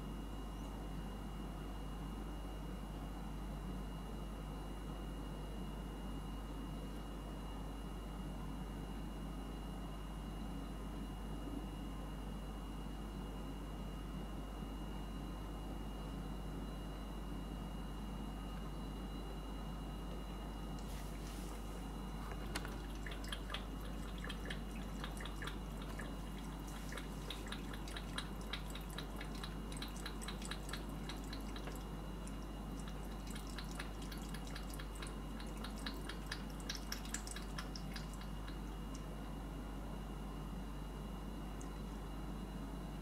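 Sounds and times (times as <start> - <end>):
cat chewing and licking: 20.8 - 39.1.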